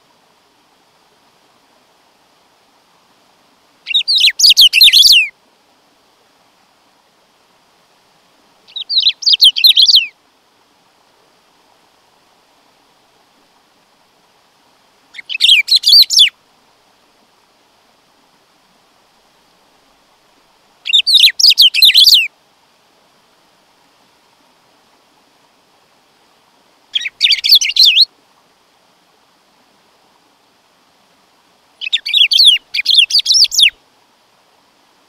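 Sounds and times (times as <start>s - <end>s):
bird chirping song: 3.8s - 5.3s, 8.7s - 10.1s, 15.1s - 16.4s, 20.8s - 22.3s, 26.9s - 28.1s, 31.8s - 33.8s.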